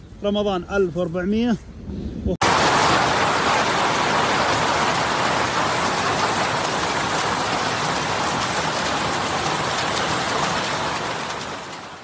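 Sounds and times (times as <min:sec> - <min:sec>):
hail pelting the ground: 0:02.4 - 0:12.0.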